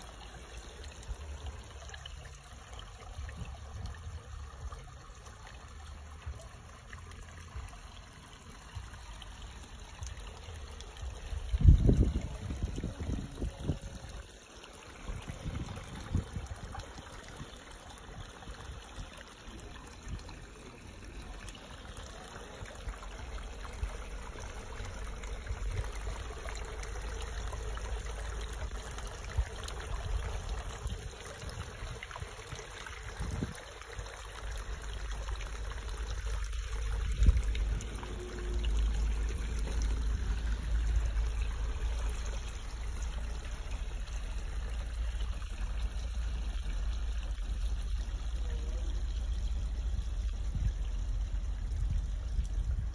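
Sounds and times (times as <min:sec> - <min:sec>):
stream trickling over rocks: 0:00.0 - 0:52.9
low microphone rumble: 0:47.2 - 0:52.9.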